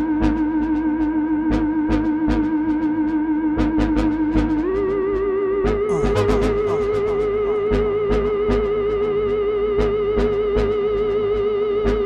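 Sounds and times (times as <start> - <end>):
techno beat low thumps: 5.8 - 10.4
wavering synth tone: 5.9 - 9.5.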